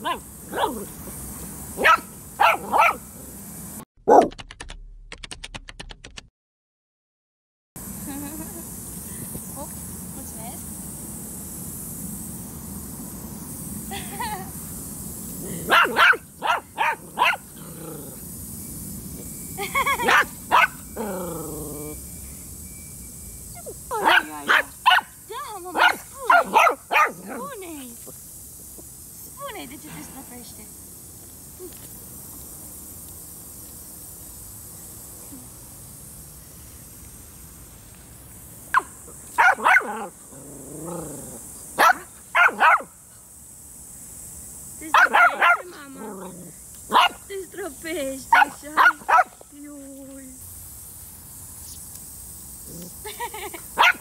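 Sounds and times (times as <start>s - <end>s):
puppy barking: 0.0s - 0.9s, 1.8s - 3.1s, 4.1s - 4.3s, 15.7s - 17.5s, 20.0s - 20.8s, 24.0s - 25.2s, 25.8s - 27.4s, 38.7s - 40.1s, 41.8s - 42.9s, 44.9s - 45.8s, 46.9s - 47.2s, 48.3s - 49.4s, 53.8s - 54.0s
puppy yapping: 1.8s - 3.0s, 15.7s - 17.4s, 38.8s - 40.1s.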